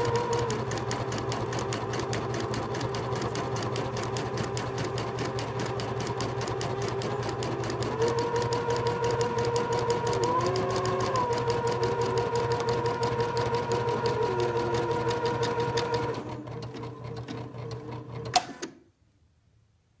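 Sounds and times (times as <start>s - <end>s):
motor whine: 0.0s - 0.8s, 7.0s - 16.7s.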